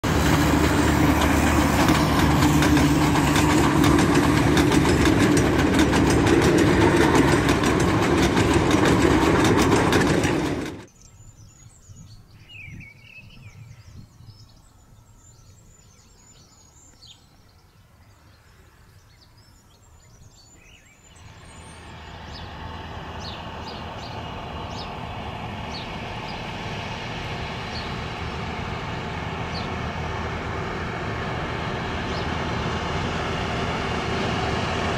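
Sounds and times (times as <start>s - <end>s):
diesel locomotive running: 0.0s - 10.9s, 20.5s - 34.9s
train engine approaching: 0.0s - 10.9s, 20.2s - 34.9s.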